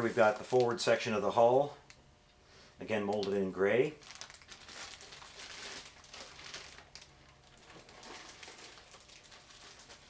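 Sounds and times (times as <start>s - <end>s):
plastic bag crinkling: 0.0s - 1.0s, 3.1s - 10.0s.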